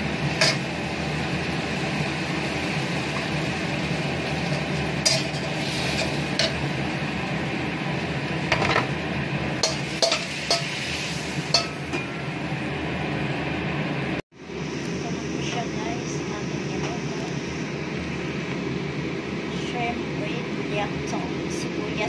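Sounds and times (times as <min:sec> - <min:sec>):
metal spatula scraping a wok: 0:00.4 - 0:00.6, 0:05.0 - 0:06.6, 0:09.6 - 0:12.0.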